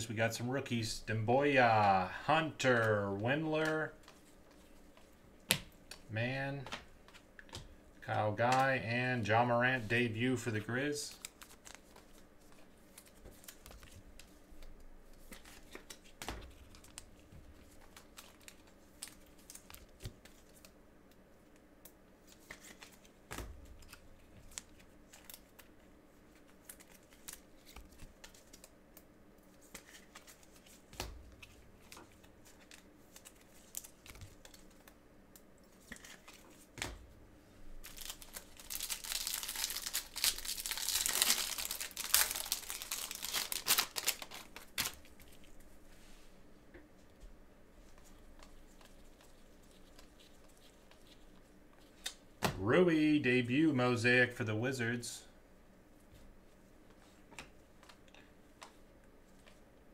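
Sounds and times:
plastic wrapper tearing and crinkling: 37.8 - 45.4.

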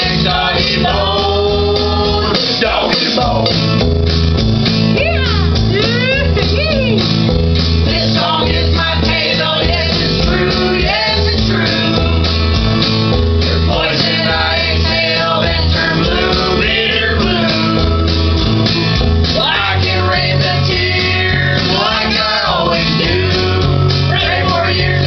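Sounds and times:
guitar backing: 0.0 - 25.0
repeating bass line: 0.0 - 25.0
person singing: 13.6 - 25.0.

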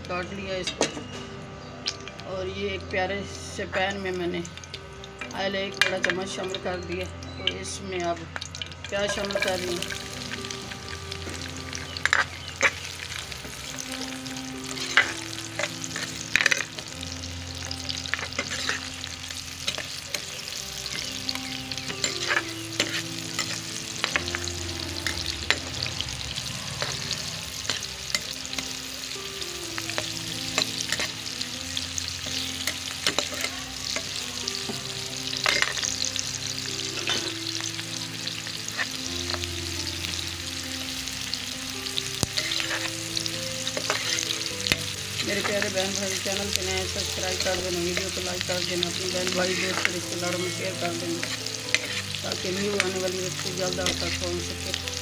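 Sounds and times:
onions sizzling in hot oil: 0.0 - 55.0
metal spatula scraping a pan: 8.8 - 10.2, 11.7 - 13.5, 14.7 - 16.9, 17.6 - 21.1, 21.7 - 28.8, 32.3 - 34.1, 35.4 - 36.1, 37.0 - 37.6, 38.6 - 39.4, 42.2 - 53.0.

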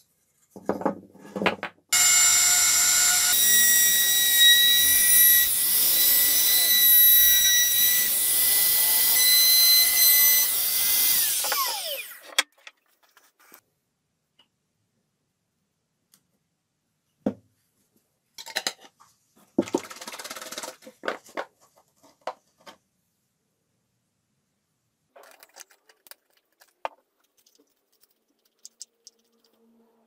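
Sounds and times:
spoon scraping glass jar: 25.2 - 29.6
stirring in plastic cup: 25.2 - 29.6.

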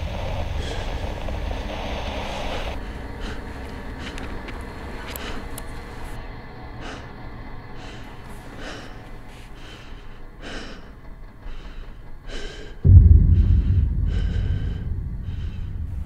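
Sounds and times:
person breathing heavily: 0.4 - 6.1, 6.8 - 16.0
low steady hum: 12.8 - 16.0.

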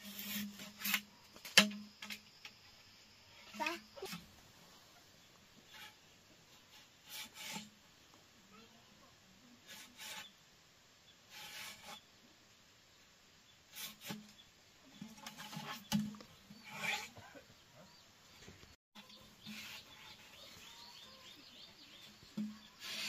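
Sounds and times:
scraping strokes: 0.0 - 2.2, 5.7 - 7.8, 9.6 - 10.3, 11.3 - 12.0, 13.7 - 17.2, 19.0 - 23.0.

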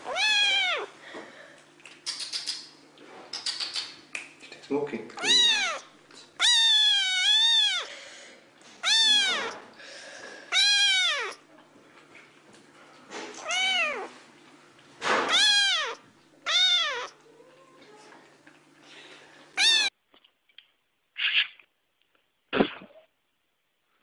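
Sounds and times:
kitten meowing: 0.0 - 0.9, 5.2 - 7.9, 8.8 - 9.6, 10.5 - 11.4, 13.4 - 14.1, 15.2 - 17.2, 19.6 - 19.9.

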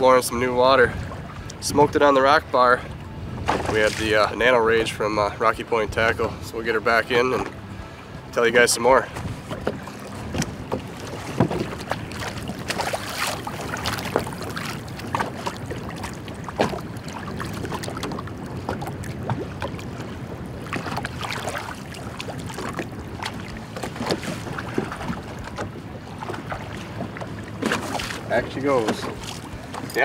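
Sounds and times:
waves slapping against boat hull: 0.0 - 30.0
wind buffeting microphone: 0.0 - 30.0
small splashes: 9.5 - 30.0.

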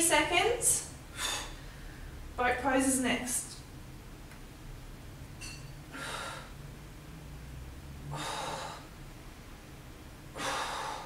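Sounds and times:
woman exhaling forcefully: 1.1 - 1.9, 5.9 - 6.6, 8.1 - 9.0, 10.3 - 11.0.

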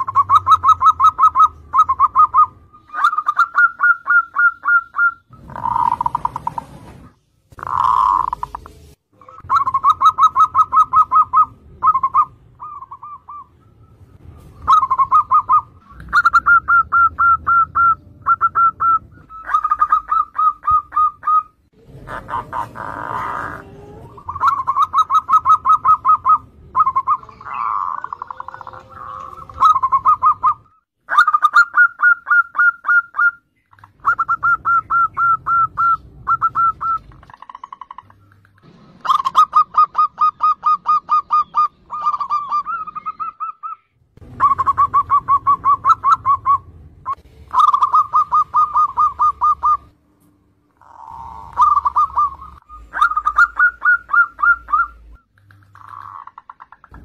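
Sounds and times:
dove staccato cooing: 0.0 - 13.6, 14.6 - 49.9, 50.8 - 57.0.

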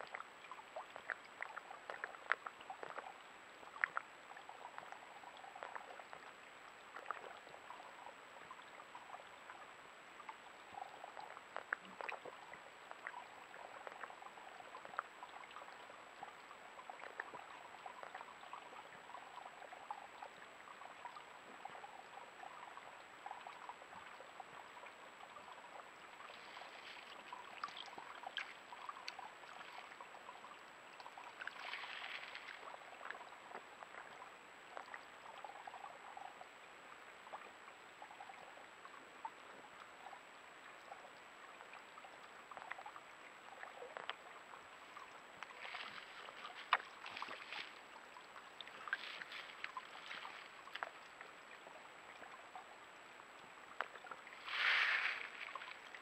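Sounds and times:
small waterfall trickling over rock: 0.0 - 56.0
deer lapping water: 44.8 - 51.4, 53.8 - 56.0.

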